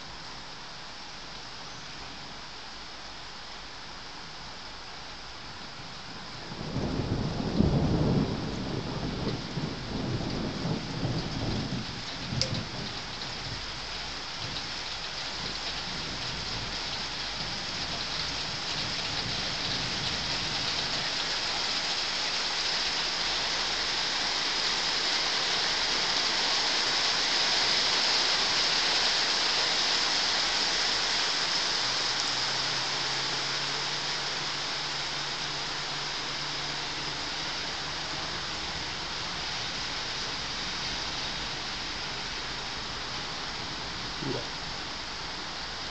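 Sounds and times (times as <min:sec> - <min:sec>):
heavy rain: 0:00.0 - 0:45.9
thunder rumbling: 0:05.9 - 0:22.5.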